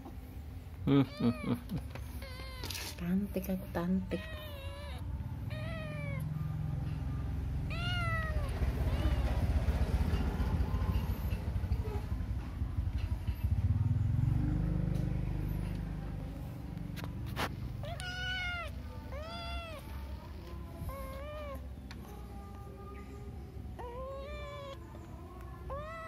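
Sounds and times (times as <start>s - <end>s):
kitten meowing: 4.1s - 6.3s, 7.7s - 9.4s, 17.8s - 20.0s, 23.8s - 24.9s, 25.7s - 26.0s.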